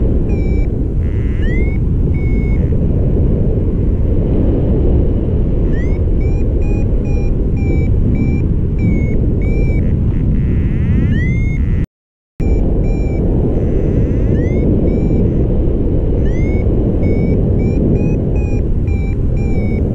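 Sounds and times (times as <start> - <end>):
wind rumble on microphone: 0.0 - 11.8, 12.4 - 19.9
variometer beeping: 0.2 - 2.8, 5.6 - 11.8, 12.4 - 15.5, 16.2 - 19.9.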